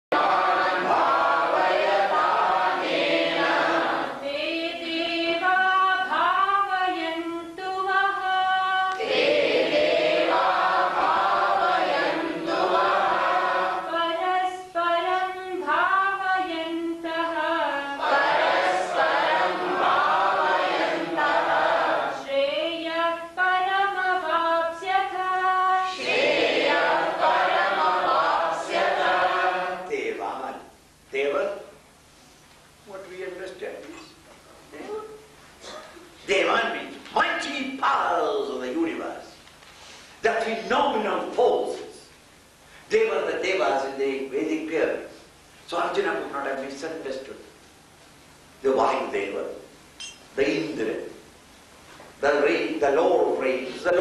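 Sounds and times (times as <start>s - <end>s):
group chanting: 0.1s - 4.4s, 8.9s - 14.0s, 18.0s - 22.3s, 25.8s - 29.9s.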